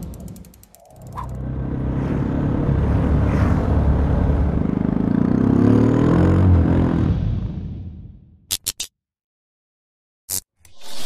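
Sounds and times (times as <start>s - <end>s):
motorcycle engine accelerating: 0.0s - 8.0s.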